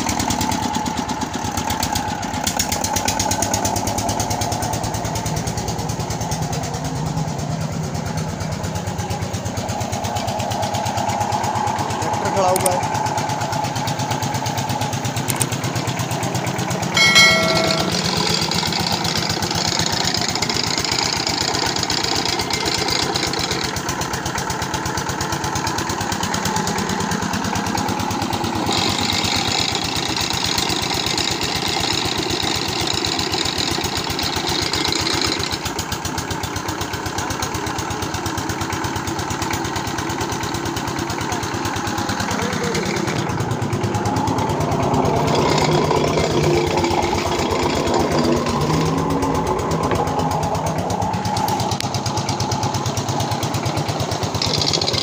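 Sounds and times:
diesel engine running: 0.0 - 17.0, 18.0 - 55.0
short ringing note: 17.0 - 18.6.

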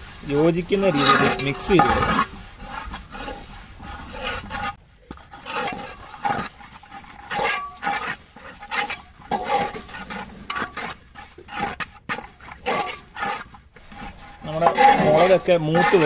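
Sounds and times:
metal ladle scraping pot: 0.0 - 16.0.

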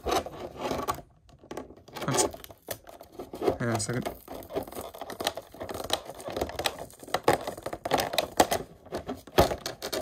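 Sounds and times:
plastic blister pack crackling: 2.0 - 10.0.

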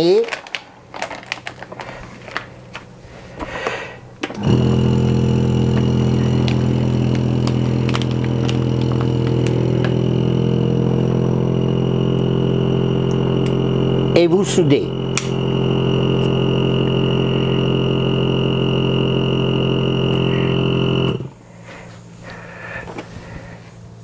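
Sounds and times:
plastic bag crinkling: 0.0 - 3.8, 5.7 - 10.2
vacuum sealer pump humming: 0.0 - 24.0.

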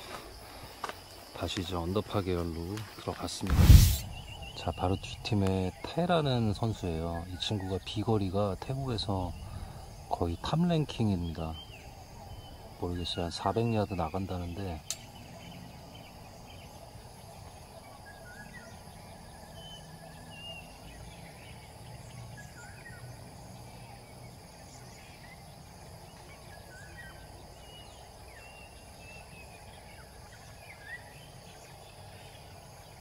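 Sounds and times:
high insect drone: 0.0 - 33.0
birds chirping and whistling: 3.3 - 8.0.

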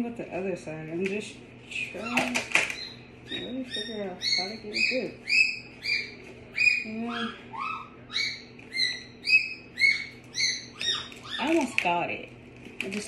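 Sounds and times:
high chirping call: 2.7 - 11.6.

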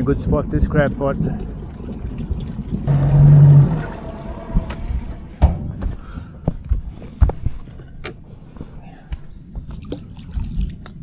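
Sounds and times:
low rumble: 0.0 - 6.5
knocks on boat deck and hull: 4.5 - 6.0.

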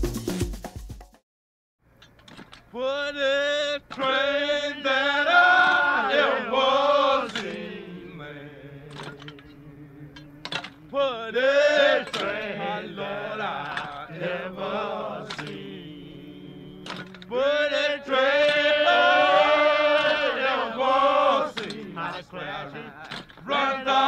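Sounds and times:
person chanting sung phrases: 2.7 - 24.0
sharp percussive clicks: 7.2 - 7.6, 12.0 - 12.6, 15.2 - 15.8.

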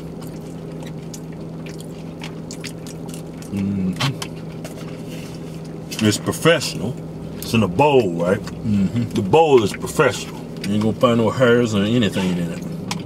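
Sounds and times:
chewing: 0.0 - 6.0, 12.1 - 13.0
car cabin hum: 0.0 - 13.0
person humming: 3.5 - 4.1.

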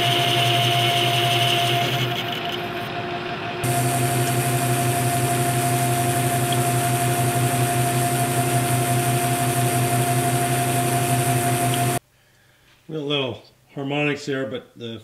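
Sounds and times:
metal lathe whine: 0.0 - 12.0
motor hum: 0.0 - 12.0.

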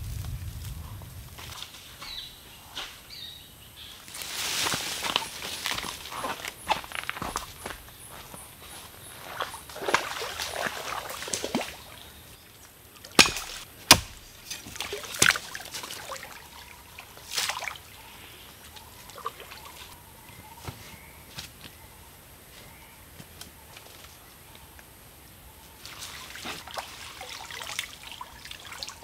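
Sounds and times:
water trickling and dripping: 9.1 - 19.9, 25.8 - 29.0
stream water sloshing and splashing: 9.2 - 18.1, 18.8 - 20.0, 25.8 - 29.0.

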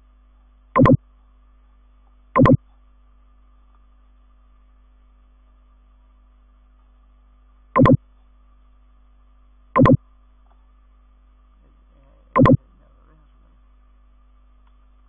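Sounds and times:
faint steady hum: 0.0 - 15.0
short electronic beep: 0.8 - 1.0, 2.4 - 2.6, 7.8 - 8.0, 9.8 - 10.0, 12.4 - 12.6.

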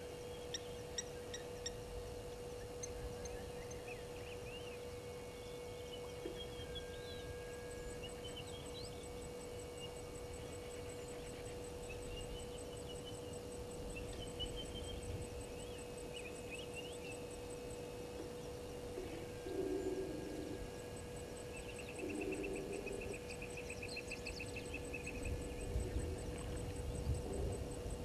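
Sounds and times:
electrical hum: 0.0 - 28.0
small birds chirping: 7.8 - 28.0
insect ticking: 9.5 - 28.0.

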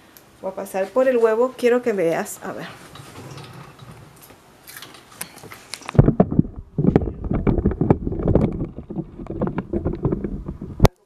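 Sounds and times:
camera handling rumble: 4.0 - 11.0.

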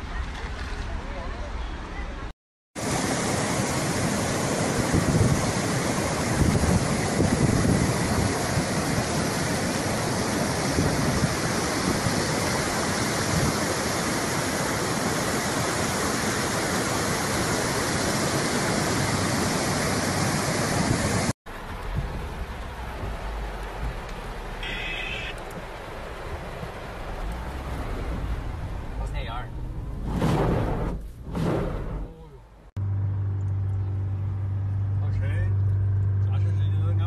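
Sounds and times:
river water rushing: 2.8 - 29.0.

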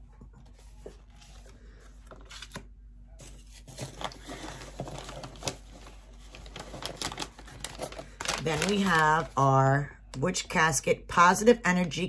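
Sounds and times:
packaging rustling and clicking: 2.1 - 9.4.

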